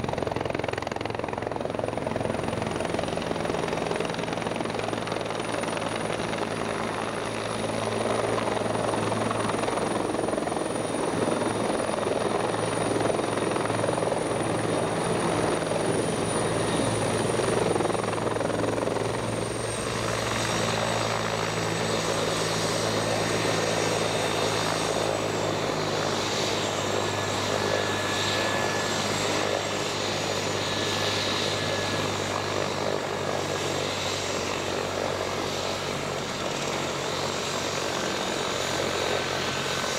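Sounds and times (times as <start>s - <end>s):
helicopter rotor noise: 0.0s - 39.9s.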